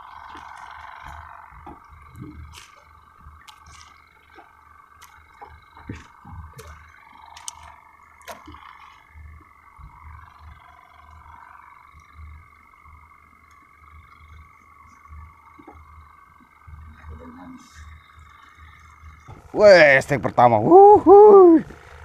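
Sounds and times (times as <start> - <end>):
faint steady hum: 0.0 - 22.0
wind rumble on microphone: 1.0 - 2.6.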